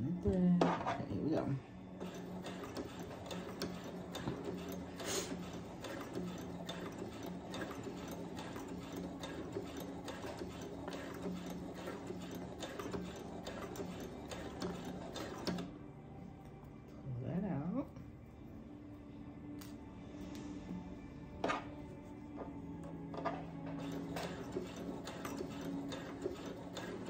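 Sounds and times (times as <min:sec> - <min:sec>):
sewing machine stitching: 0:02.0 - 0:15.7, 0:23.1 - 0:27.0.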